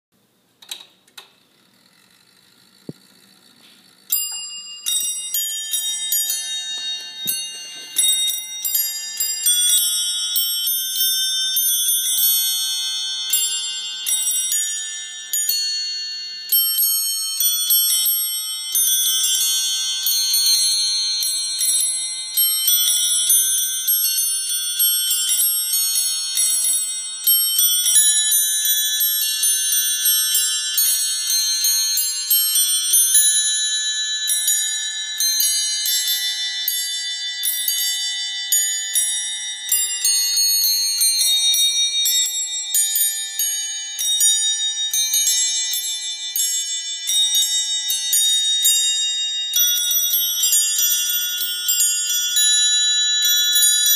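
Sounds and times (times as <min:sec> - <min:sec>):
gearwork clicks and whirr: 0:00.6 - 0:05.2
carillon bells playing melody: 0:03.2 - 0:53.9.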